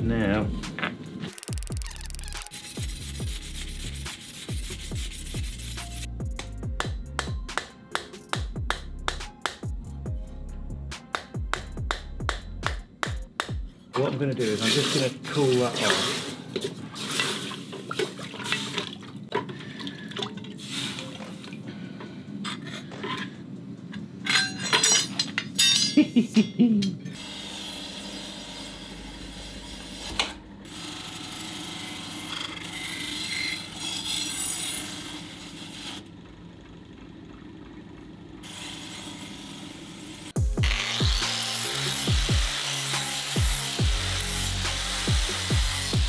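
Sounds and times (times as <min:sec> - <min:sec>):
metal clinking: 0:24.2 - 0:27.0.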